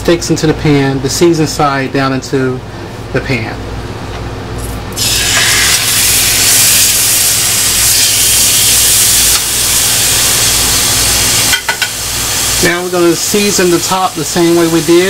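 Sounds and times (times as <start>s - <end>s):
meat sizzling in a skillet: 5.0s - 15.0s.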